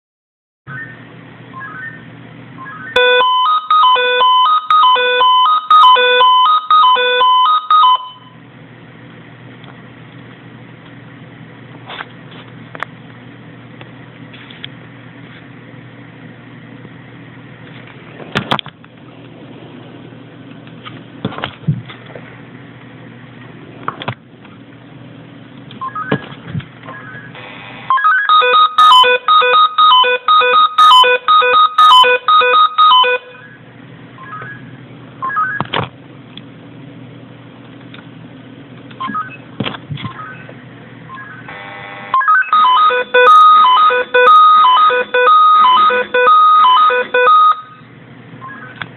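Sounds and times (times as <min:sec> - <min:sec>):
pager beeping alarm melody: 0:02.6 - 0:08.4, 0:27.4 - 0:33.6, 0:41.2 - 0:47.8
pager buzz: 0:27.4 - 0:28.6, 0:41.4 - 0:47.6.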